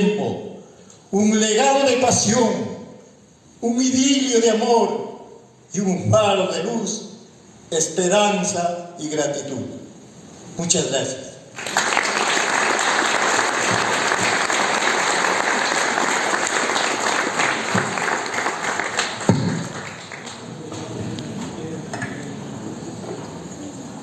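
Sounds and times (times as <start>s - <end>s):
audience applauding: 11.6s - 21.6s.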